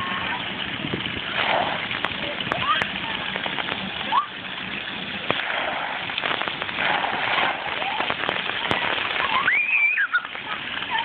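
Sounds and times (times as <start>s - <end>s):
water jets spraying on concrete: 0.0s - 11.0s
child squealing: 9.3s - 10.3s.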